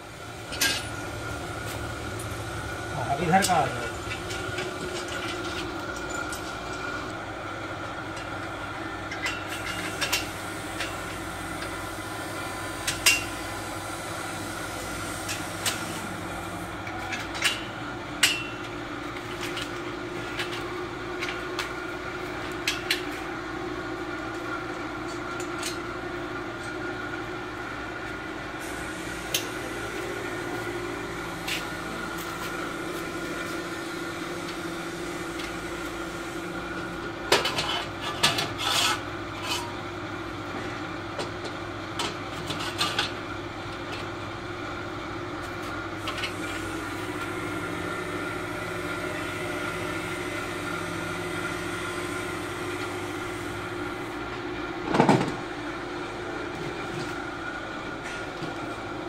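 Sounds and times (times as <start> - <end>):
steady machine hum: 0.0 - 59.0.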